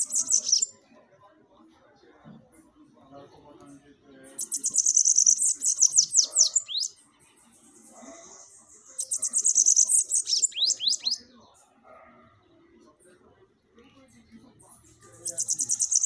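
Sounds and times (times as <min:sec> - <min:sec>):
high-pitched bird twittering: 0:00.0 - 0:00.8, 0:04.2 - 0:11.3, 0:14.7 - 0:16.0.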